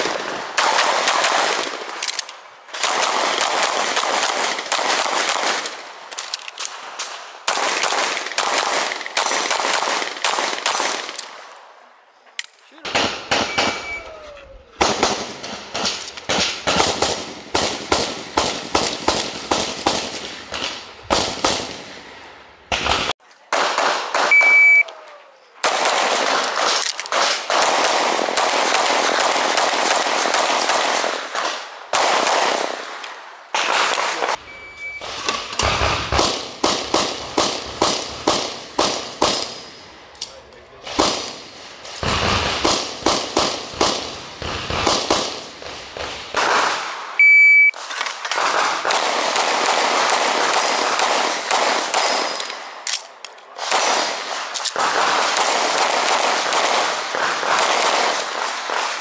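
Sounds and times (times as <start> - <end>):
pistol shots: 0.0 - 11.6, 12.8 - 14.0, 14.8 - 22.0, 22.7 - 24.8, 25.6 - 39.8, 40.9 - 47.2, 47.8 - 59.0
short high electronic beep: 13.4 - 14.1, 24.3 - 24.8, 34.5 - 35.0.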